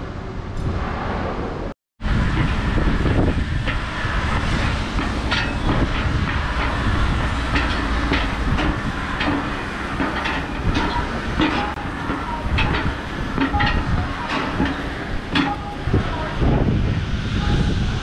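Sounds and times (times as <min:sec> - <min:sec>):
low rumble: 0:00.0 - 0:18.0
footsteps on metal stairs: 0:03.4 - 0:16.4.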